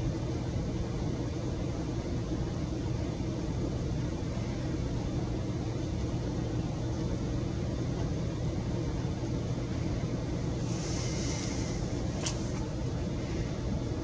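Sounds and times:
low background rumble: 0.0 - 14.0.

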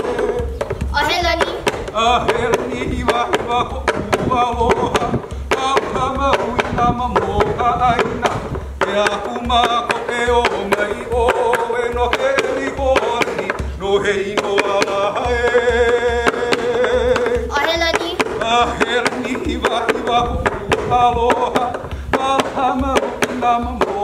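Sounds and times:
gourd drum thumps and slaps: 0.0 - 24.0
person chanting: 10.6 - 24.0.

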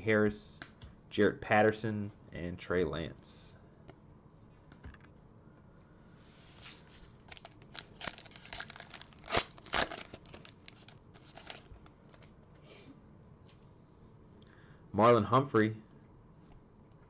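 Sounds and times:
foil wrapper tearing and crinkling: 7.3 - 12.3.

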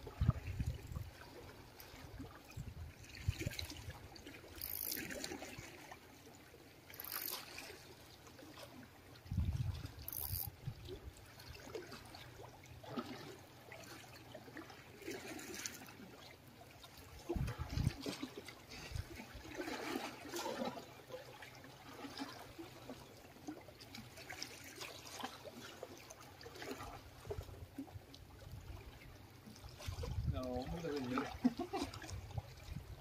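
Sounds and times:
wind rumble on microphone: 0.0 - 1.2, 2.6 - 3.7, 9.2 - 11.1, 17.2 - 18.0, 29.8 - 30.7, 32.0 - 33.0
small waves lapping on concrete: 0.0 - 33.0.

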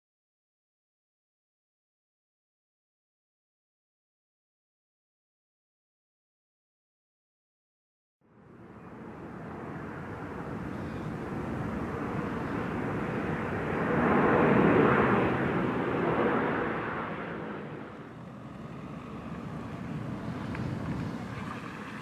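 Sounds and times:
vehicle passing by: 8.9 - 22.0.

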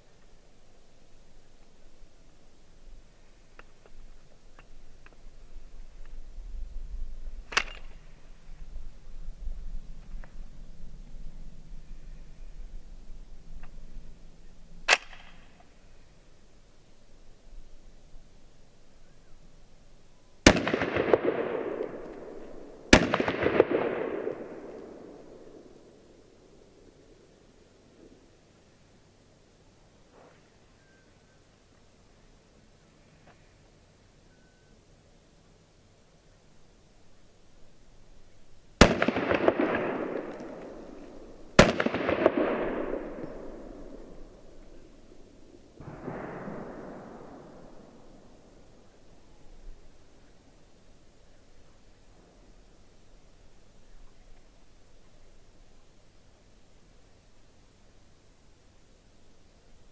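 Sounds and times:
pistol shots with echoes: 20.5 - 25.8, 38.8 - 41.0, 41.6 - 44.4, 45.8 - 48.2
soft noise: 24.2 - 38.8.

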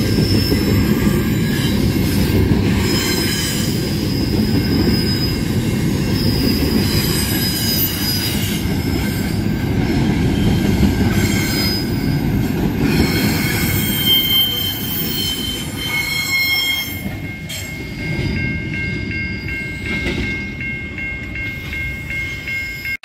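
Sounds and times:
train wheels rumbling on rails: 0.0 - 23.0
wheel squeal: 2.8 - 9.2, 12.9 - 17.8.

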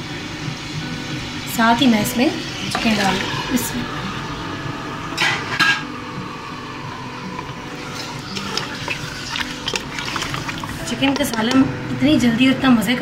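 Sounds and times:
chicken frying in oil: 7.8 - 11.5.

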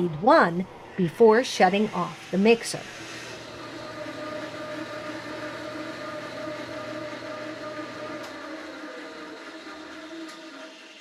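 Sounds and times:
mixer motor whine: 0.0 - 11.0.

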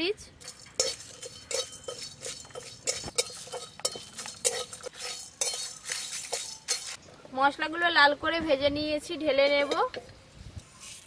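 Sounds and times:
metal spatula scraping a pan: 0.4 - 7.0.

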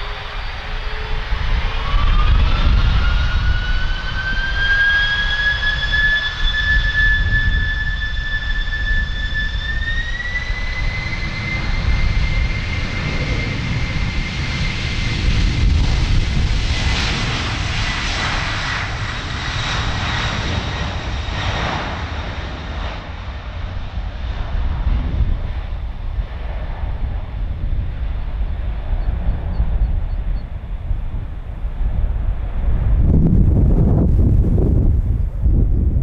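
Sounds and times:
jet engines whining: 0.0 - 36.0
heavy low rumble: 10.8 - 36.0.

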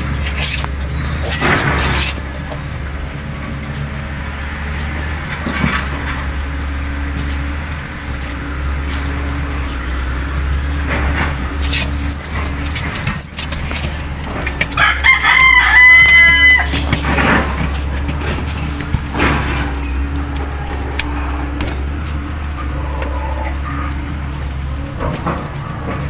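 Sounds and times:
steady low hum: 0.0 - 26.0
rooster crowing: 14.1 - 26.0.

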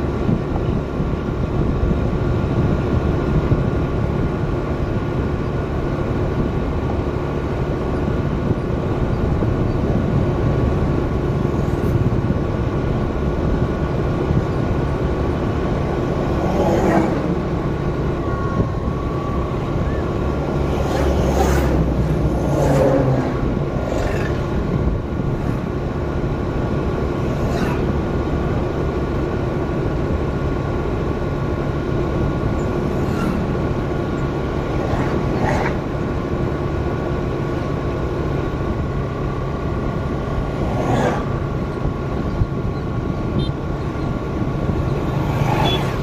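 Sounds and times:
vehicle running on highway: 0.0 - 46.0.

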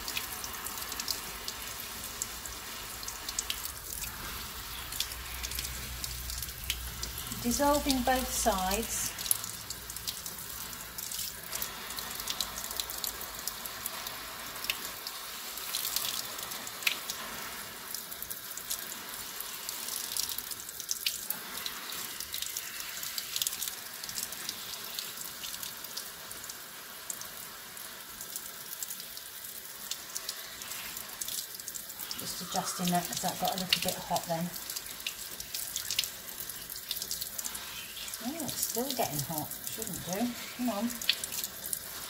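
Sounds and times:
tap spray running into sink: 0.0 - 42.0
water splashing over hands and fabric: 30.2 - 42.0.

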